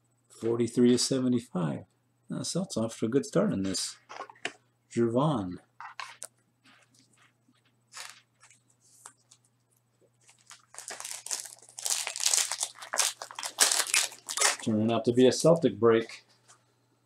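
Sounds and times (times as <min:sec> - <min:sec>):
wrapper crinkling and tearing: 0:07.9 - 0:08.6, 0:10.2 - 0:14.7.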